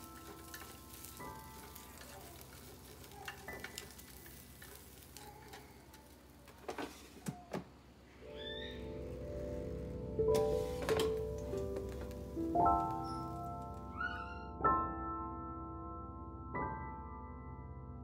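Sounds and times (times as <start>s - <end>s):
shrimp sizzling in air fryer: 0.0s - 6.8s, 10.4s - 13.9s.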